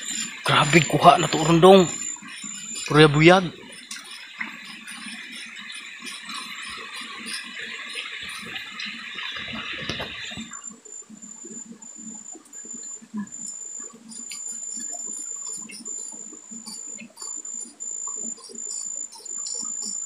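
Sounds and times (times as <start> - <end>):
current gurgling: 0.0 - 11.8
faint high whine: 0.0 - 20.0.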